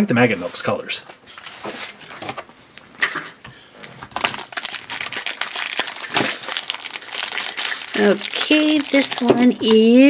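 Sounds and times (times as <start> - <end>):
plastic toy pack clicking and rustling: 4.1 - 10.0.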